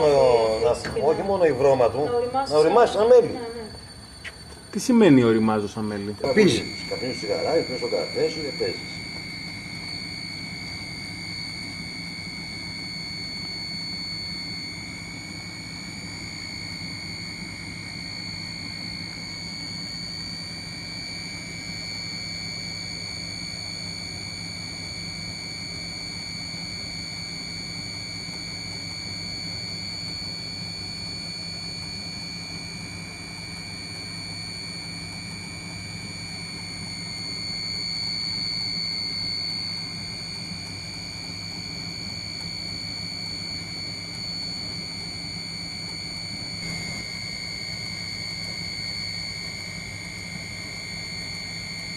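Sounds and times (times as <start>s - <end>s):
machine hum with high whine: 0.0s - 51.9s.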